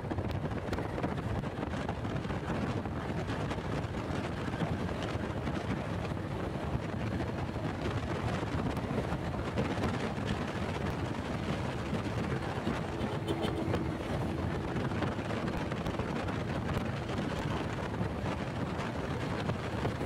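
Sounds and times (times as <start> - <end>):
wind rushing over microphone: 0.0 - 20.0
motorcycle engine running: 8.3 - 20.0.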